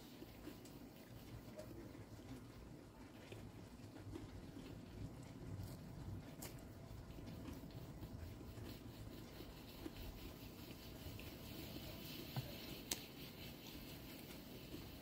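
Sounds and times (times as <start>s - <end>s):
faint chewing: 0.2s - 11.4s.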